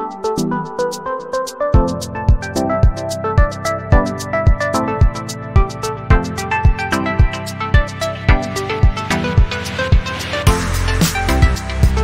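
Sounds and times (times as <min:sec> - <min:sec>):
electronic music with kick drum: 0:00.0 - 0:12.0.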